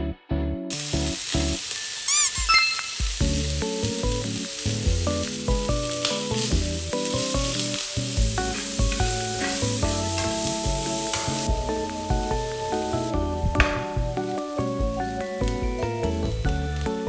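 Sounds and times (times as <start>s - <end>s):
background music with melody: 0.0s - 17.0s
vegetables sizzling in a frying pan: 0.7s - 17.0s.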